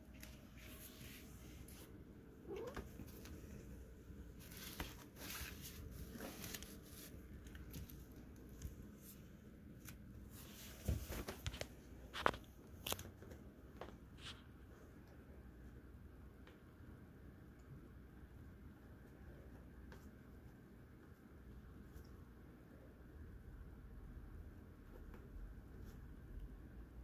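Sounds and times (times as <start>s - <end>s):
nylon tunnel rustling and crinkling: 4.3s - 9.2s.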